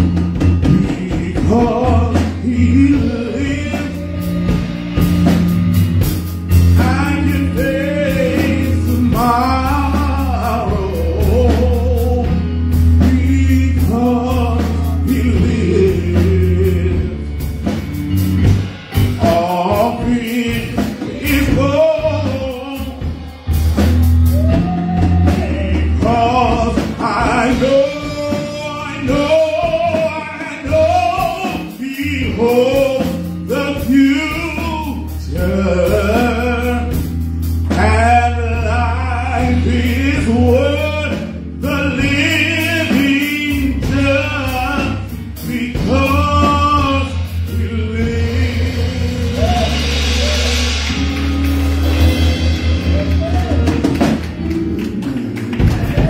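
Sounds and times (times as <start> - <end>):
man singing: 0.0 - 50.8
drum kit: 0.0 - 56.0
electronic keyboard: 50.6 - 56.0.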